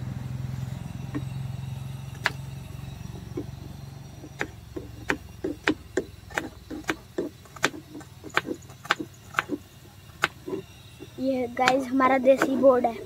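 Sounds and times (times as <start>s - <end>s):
low steady hum: 0.0s - 13.0s
knife chopping on cutting board: 4.4s - 9.6s.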